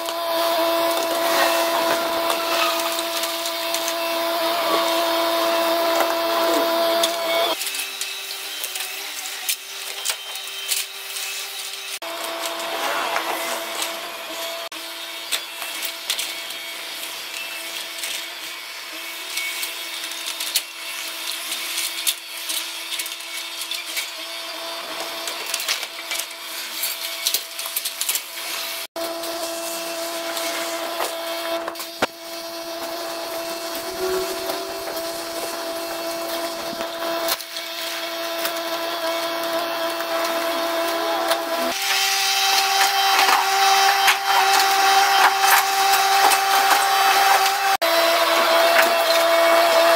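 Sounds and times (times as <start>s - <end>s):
excavator hydraulic whine: 32.2s - 37.3s.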